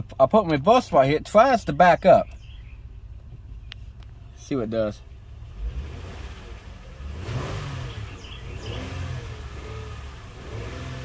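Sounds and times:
engine revving: 5.2 - 11.0.

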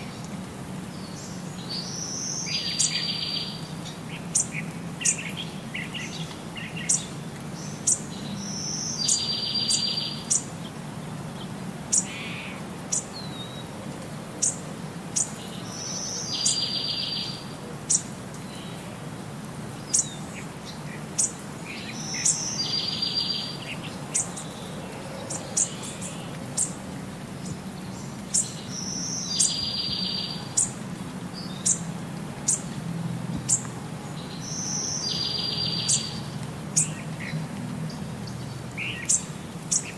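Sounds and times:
bird chirping: 1.0 - 10.5, 15.2 - 18.8, 19.8 - 26.8, 27.4 - 31.9, 33.4 - 39.9.

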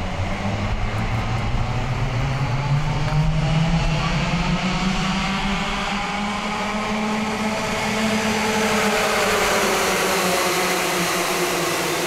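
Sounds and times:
kart engines buzzing: 0.0 - 12.0.

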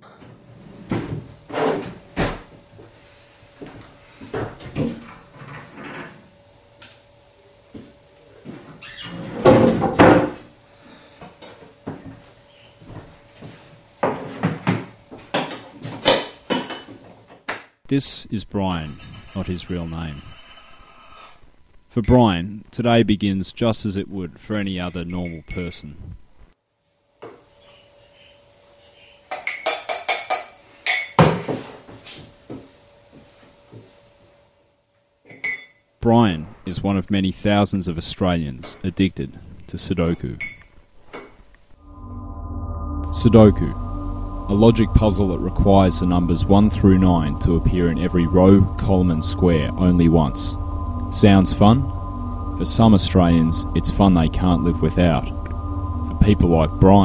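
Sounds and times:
faint steady hum: 17.9 - 26.6, 36.0 - 57.0.

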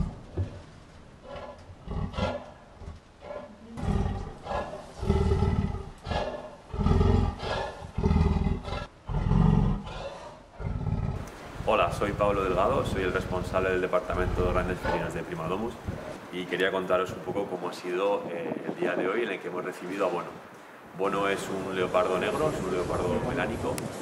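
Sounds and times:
leopard low rough calls: 0.0 - 11.2, 12.4 - 16.3.

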